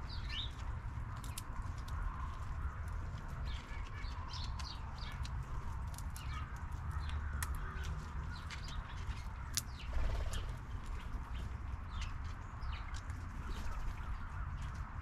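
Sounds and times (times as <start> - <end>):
small birds chirping: 0.0 - 15.0
squirrel cracking nuts: 1.1 - 9.8.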